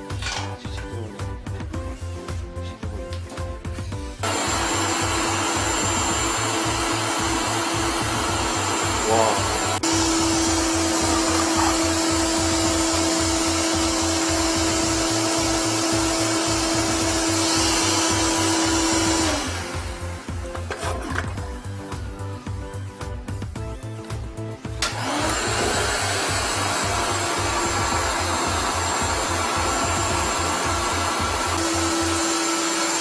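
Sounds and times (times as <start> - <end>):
shop vacuum whining: 4.2 - 21.7, 24.8 - 33.0.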